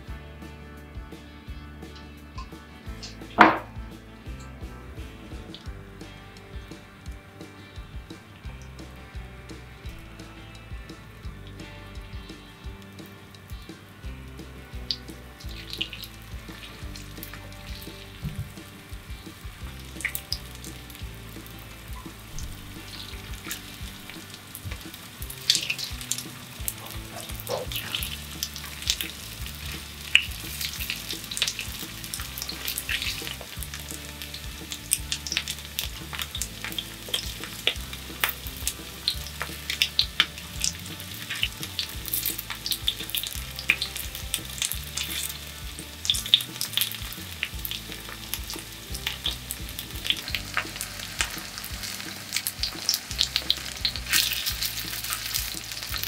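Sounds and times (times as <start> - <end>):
food crackling in hot oil: 12.3 - 56.0.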